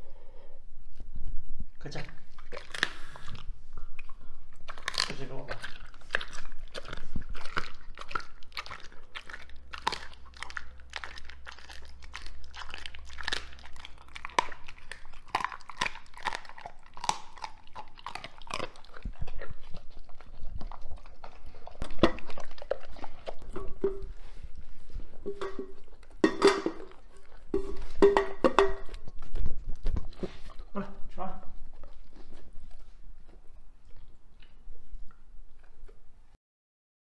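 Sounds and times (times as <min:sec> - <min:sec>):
dog chewing and crunching food: 0:00.8 - 0:36.4.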